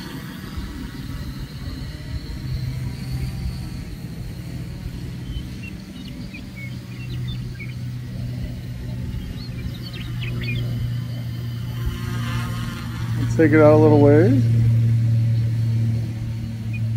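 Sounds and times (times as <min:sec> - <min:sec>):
quadcopter motors humming: 0:00.0 - 0:16.9
wind rumbling on microphone: 0:00.0 - 0:16.9.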